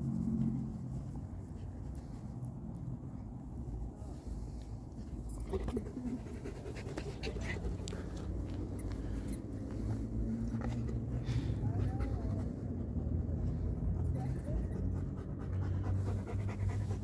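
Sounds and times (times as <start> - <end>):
light scuffs and clicks: 0.0 - 5.4, 6.6 - 13.4
dogs panting and sniffing: 0.0 - 17.0.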